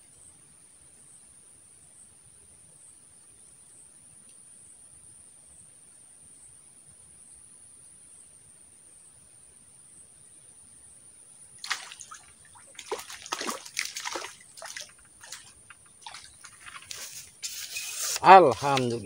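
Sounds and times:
fish splashing in water: 11.6s - 19.0s
brief swishing hiss: 17.0s - 18.3s.

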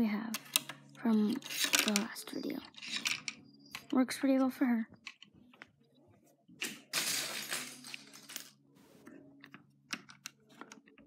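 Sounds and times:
plastic bricks clicking: 0.4s - 4.0s, 9.4s - 11.0s
plastic pieces rattling: 1.3s - 3.9s, 6.6s - 8.6s.

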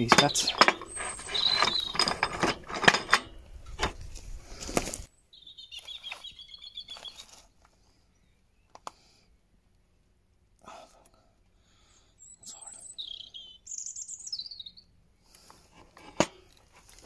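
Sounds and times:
faint bird chirping: 0.0s - 2.4s, 5.1s - 9.4s, 11.8s - 15.3s
tools clicking and knocking: 0.0s - 4.0s.

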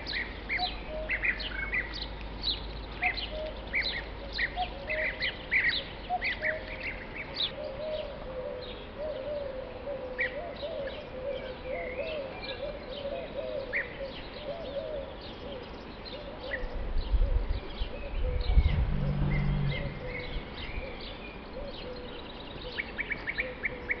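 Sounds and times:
birds calling: 0.0s - 24.0s
low rumble: 18.2s - 21.0s
low wavering sound: 18.3s - 20.9s.

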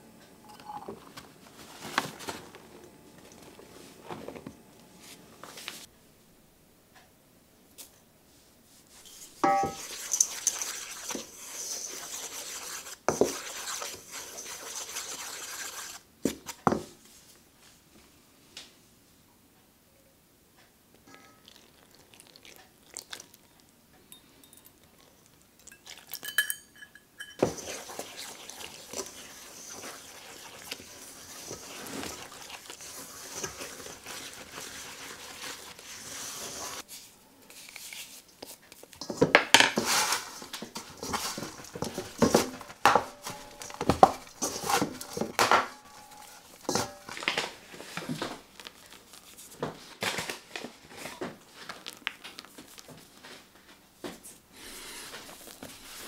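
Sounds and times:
spoon stirring and scraping: 8.9s - 16.5s, 24.1s - 49.6s
spoon knocking against bowl: 9.4s - 9.8s
metal spoon clinking on bowl: 9.4s - 10.6s, 24.1s - 25.0s, 25.6s - 27.7s.

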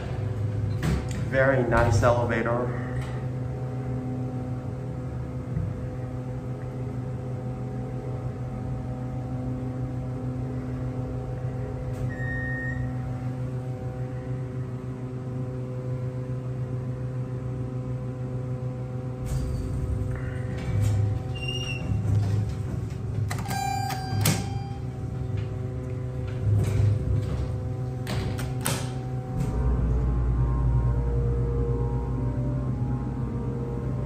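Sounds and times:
elevator electric hum: 0.0s - 34.0s
elevator click: 19.2s - 29.9s.

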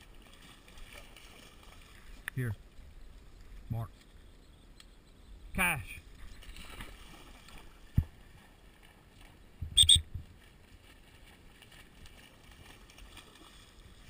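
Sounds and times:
dog splashing through water: 0.0s - 2.0s, 6.4s - 9.4s, 10.4s - 14.0s.

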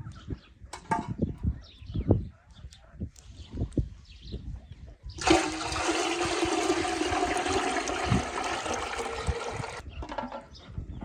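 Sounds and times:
water pouring: 5.2s - 9.8s.

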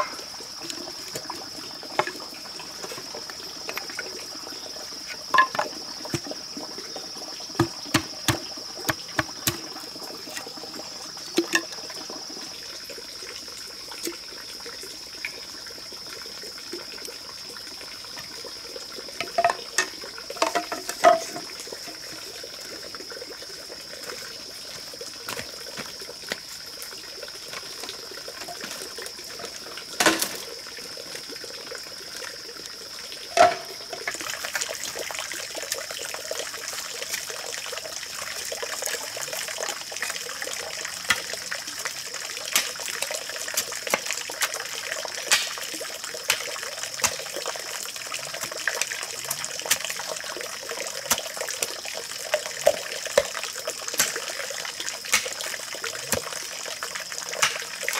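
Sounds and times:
hollow bamboo tubes knocking: 5.2s - 6.3s, 7.6s - 9.7s, 19.2s - 21.5s.

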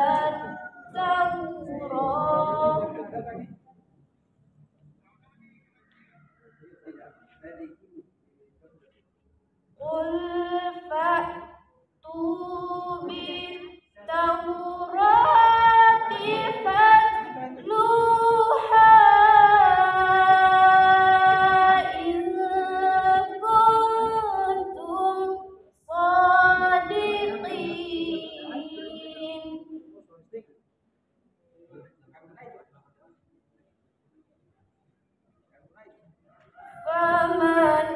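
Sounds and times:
woman chanting: 0.0s - 3.4s, 9.8s - 29.8s.

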